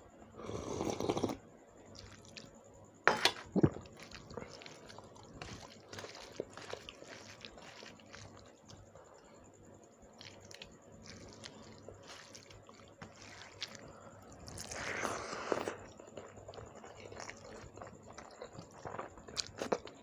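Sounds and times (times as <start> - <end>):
wet eating sound: 1.9 - 2.5, 3.4 - 9.2, 10.1 - 20.0
hand kneading wet food: 3.8 - 15.2.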